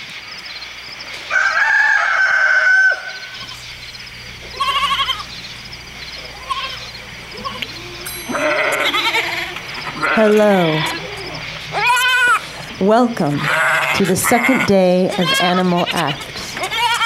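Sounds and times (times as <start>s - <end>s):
high animal call: 1.3s - 17.0s
faint repeated chirping: 3.0s - 13.0s.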